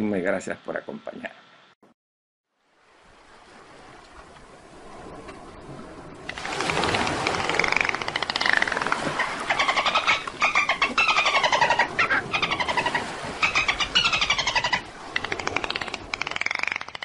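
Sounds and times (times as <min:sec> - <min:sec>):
dolphin click trains: 0:06.3 - 0:09.9, 0:14.4 - 0:17.0
dolphin whistles: 0:09.1 - 0:15.4.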